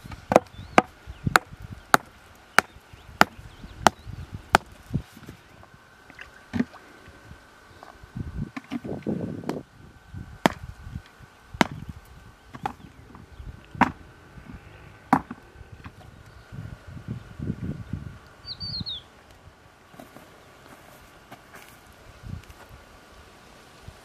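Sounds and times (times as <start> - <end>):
axe chopping wood: 0.2 - 4.8, 10.4 - 10.7, 11.6 - 11.8, 13.8 - 14.0, 15.1 - 15.4
rustling and shuffling: 19.9 - 22.8.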